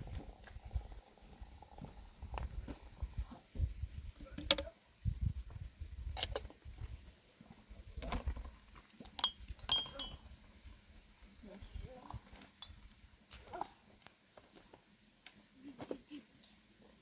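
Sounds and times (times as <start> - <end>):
glasses clinking: 9.2 - 10.2, 12.6 - 12.8.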